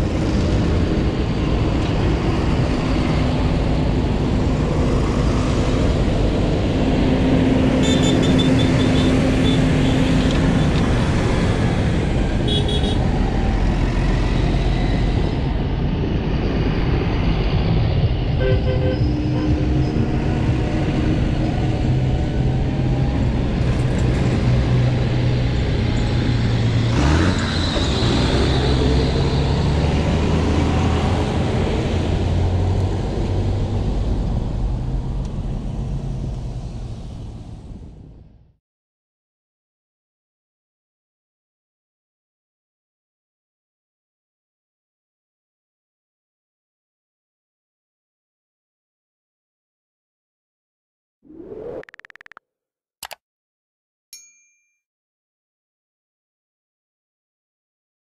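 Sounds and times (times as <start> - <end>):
tractor diesel engines passing: 0.0 - 37.9.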